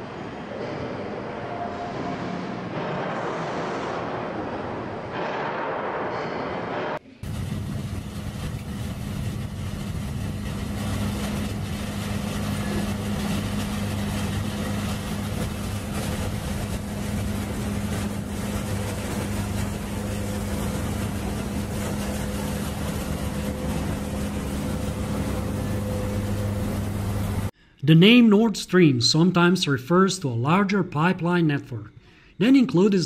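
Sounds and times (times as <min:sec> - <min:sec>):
engine drone: 0:00.5 - 0:27.6.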